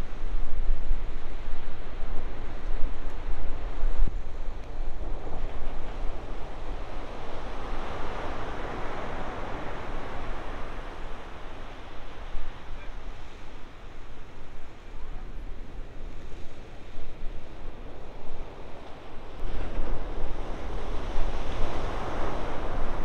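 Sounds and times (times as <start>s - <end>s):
wind rumbling on microphone: 0.0s - 23.0s.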